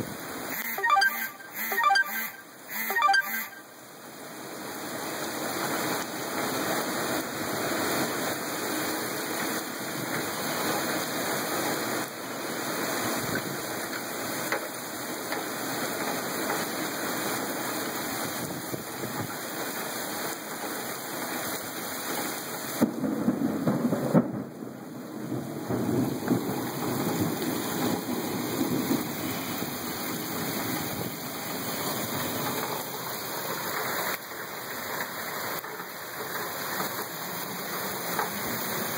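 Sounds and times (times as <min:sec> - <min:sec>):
heavy rain and wind: 0:00.0 - 0:38.9.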